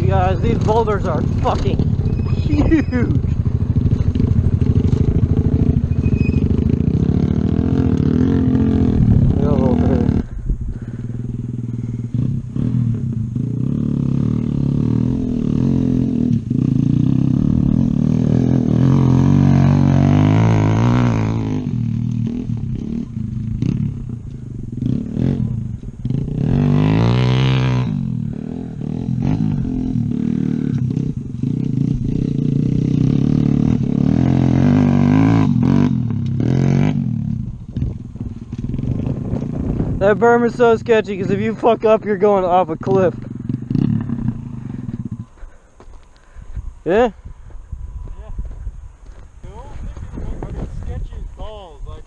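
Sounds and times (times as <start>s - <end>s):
motorcycle engine revving: 0.0s - 47.1s.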